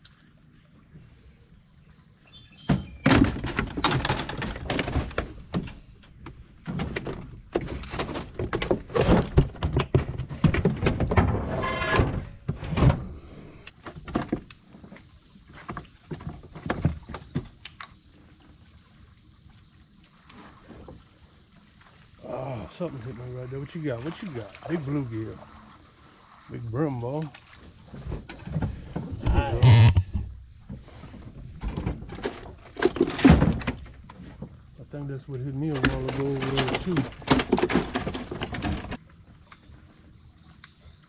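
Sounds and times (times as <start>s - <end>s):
fishing gear clattering in boat: 2.5s - 13.2s, 13.8s - 17.6s, 27.2s - 34.8s, 35.5s - 39.0s.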